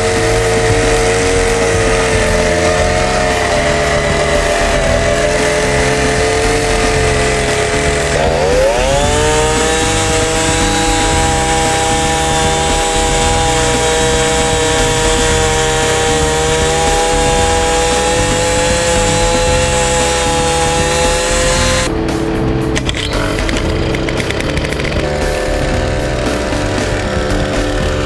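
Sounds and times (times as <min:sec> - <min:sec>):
rising whine: 0:00.0 - 0:28.0
small engine running: 0:00.0 - 0:28.0.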